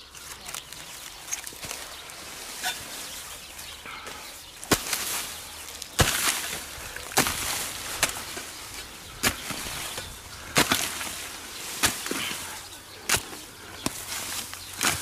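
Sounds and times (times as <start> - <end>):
hoe chopping into dry soil: 4.6 - 15.0.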